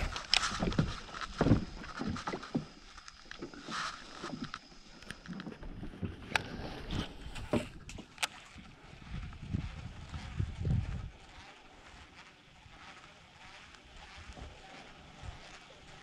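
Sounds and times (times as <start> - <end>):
knocks and clatter in a boat: 0.0 - 12.2, 14.0 - 15.7.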